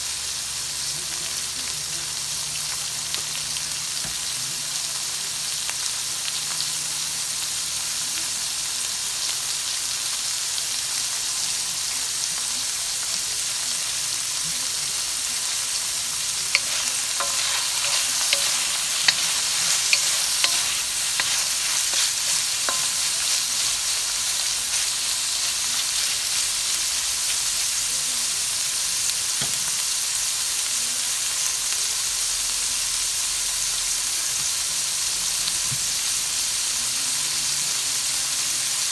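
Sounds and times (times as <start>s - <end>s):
asparagus sizzling in hot oil: 0.0s - 38.9s
wooden spatula clacking on pan: 16.5s - 23.8s.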